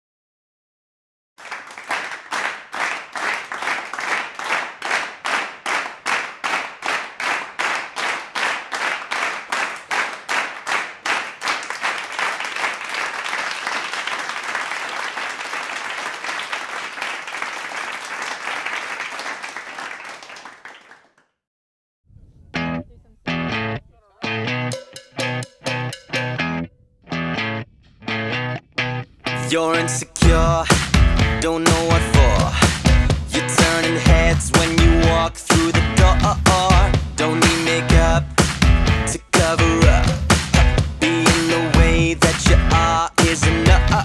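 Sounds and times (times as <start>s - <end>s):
crowd applause: 1.4s - 21.2s
crowd clapping in time: 1.4s - 21.3s, 30.2s - 44.0s.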